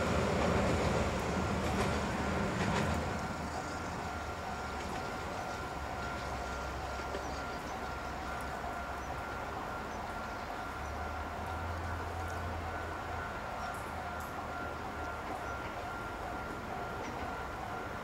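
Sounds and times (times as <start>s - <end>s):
distant urban rumble: 0.0s - 18.0s.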